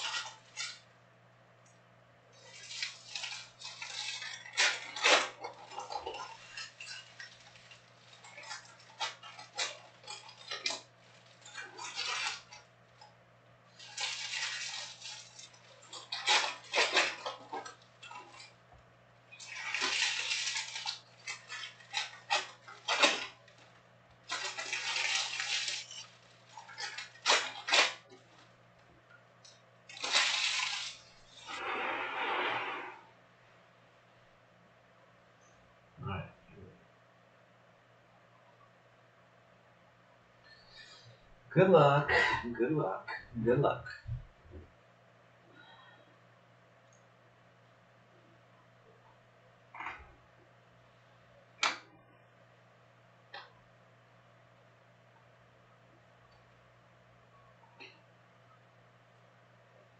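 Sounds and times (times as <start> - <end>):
plastic wrappers crinkling and tearing: 0.0 - 0.8, 2.4 - 13.1, 13.7 - 18.6, 19.3 - 28.6, 29.9 - 31.7.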